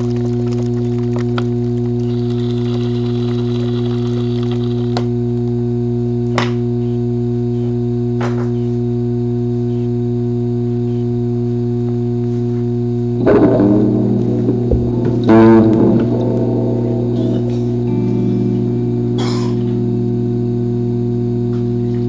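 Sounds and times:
low drone chord: 0:13.0 - 0:22.0
plucked chord: 0:13.2 - 0:22.0.

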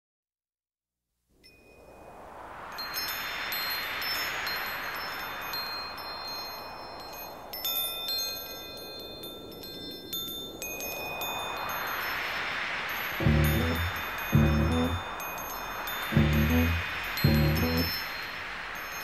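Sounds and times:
wind chimes tinkling: 0:02.8 - 0:19.0
whooshing wind: 0:10.8 - 0:19.0.

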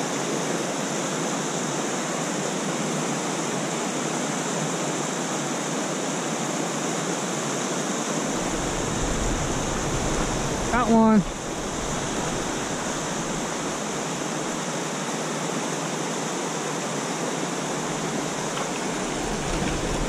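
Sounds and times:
stream water rushing over rocks: 0:00.0 - 0:20.0
low rumble: 0:08.3 - 0:14.6.

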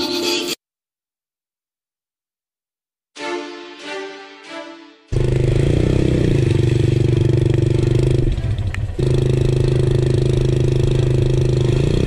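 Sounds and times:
motorcycle engine running: 0:05.1 - 0:12.0.

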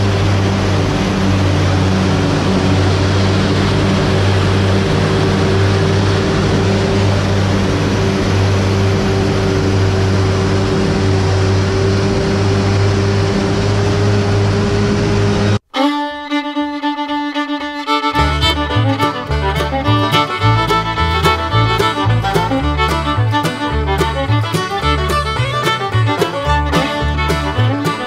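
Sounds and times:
fiddle music: 0:15.6 - 0:28.0.

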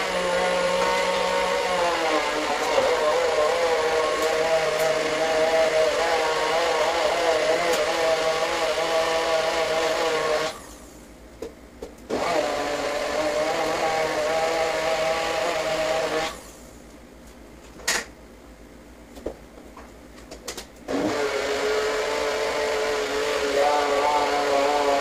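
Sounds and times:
blender motor whirring: 0:00.0 - 0:10.9, 0:12.1 - 0:16.5, 0:20.9 - 0:25.0.

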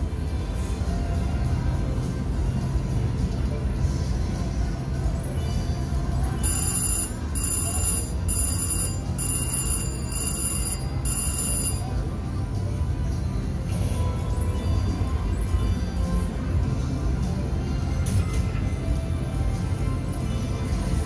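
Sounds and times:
low casino din: 0:06.0 - 0:13.9
slot machine win bell: 0:06.4 - 0:12.2.

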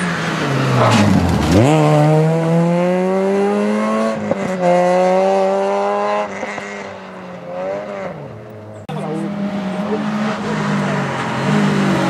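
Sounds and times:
car engine accelerating hard: 0:07.5 - 0:12.0.

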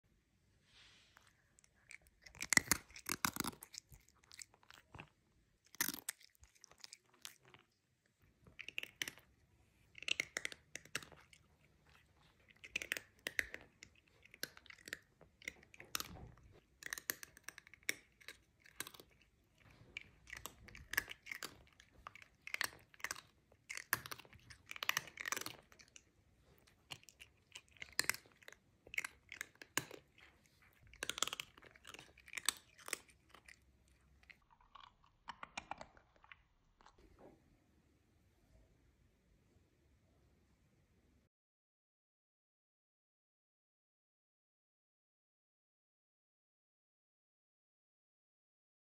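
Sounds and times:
cat crunching food: 0:01.2 - 0:37.0.

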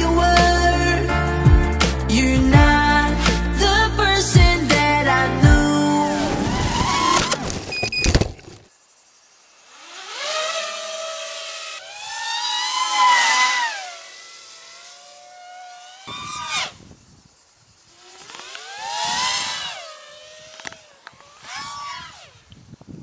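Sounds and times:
quadcopter motors whining: 0:05.6 - 0:08.7, 0:09.6 - 0:22.9.

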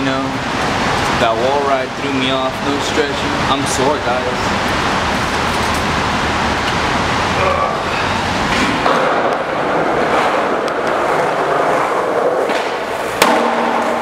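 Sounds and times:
skateboard wheels rolling: 0:08.5 - 0:14.0.

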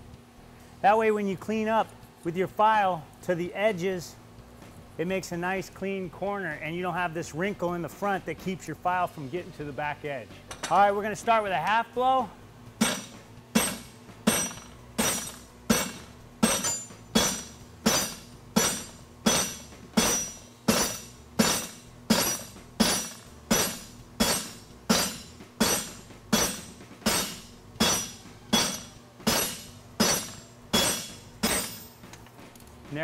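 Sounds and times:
hammer striking hot steel on anvil: 0:12.8 - 0:32.0.

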